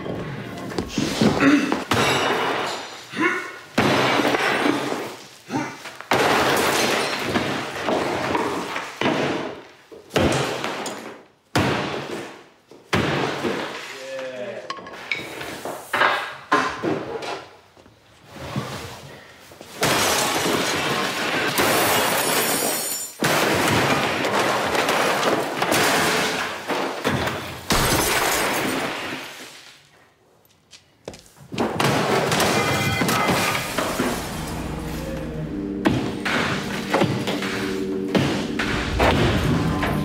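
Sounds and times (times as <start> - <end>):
glass shattering: 1.9 - 3.1, 6.1 - 7.8, 19.8 - 29.2, 31.9 - 35.8
debris crashing: 19.7 - 29.5, 31.6 - 40.0
sledgehammer blows: 31.6 - 40.0.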